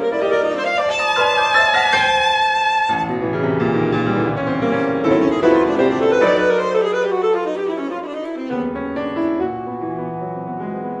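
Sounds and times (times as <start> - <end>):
piano playing quick chords: 0.0 - 7.4.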